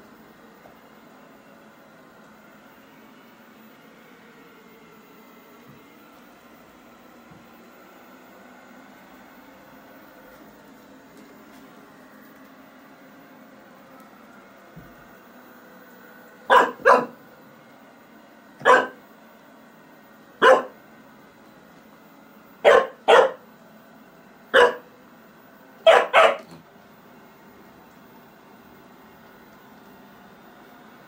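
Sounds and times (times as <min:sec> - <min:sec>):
robot vacuum humming: 0:00.0 - 0:31.0
puppy barking: 0:16.5 - 0:17.2, 0:18.6 - 0:19.0, 0:20.4 - 0:20.8, 0:22.6 - 0:23.4, 0:24.5 - 0:24.9, 0:25.8 - 0:26.6.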